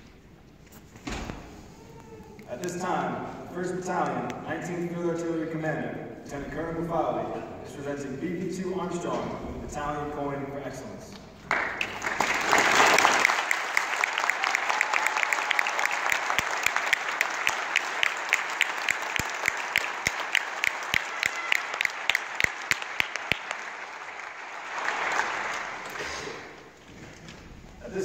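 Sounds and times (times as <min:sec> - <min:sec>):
audience applauding: 0:11.4 - 0:26.8.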